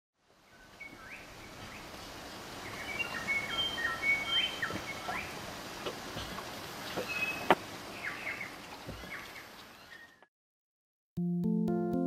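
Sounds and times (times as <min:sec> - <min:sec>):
steady outdoor hiss: 0:00.2 - 0:10.2
birds singing whistled notes: 0:00.4 - 0:02.0, 0:02.6 - 0:05.4, 0:06.8 - 0:10.3.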